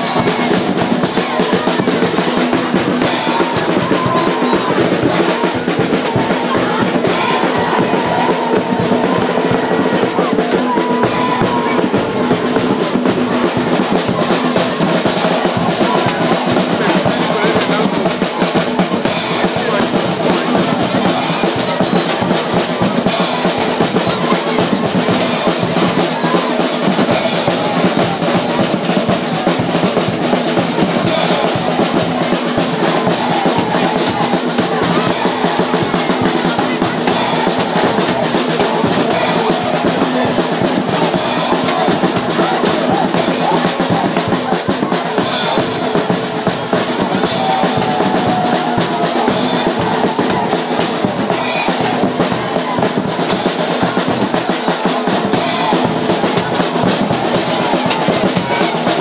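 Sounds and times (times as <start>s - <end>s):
fast dense drumming: 0.0s - 59.0s
music: 0.0s - 59.0s.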